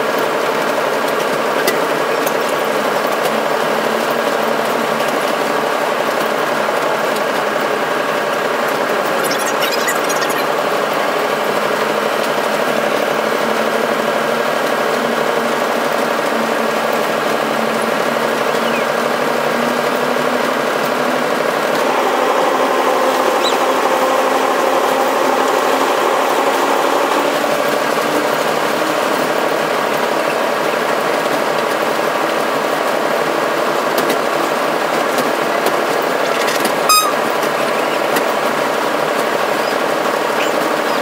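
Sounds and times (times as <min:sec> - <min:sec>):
locomotive engine drone: 0:00.0 - 0:41.0
cab rattle and vibration: 0:27.9 - 0:41.0.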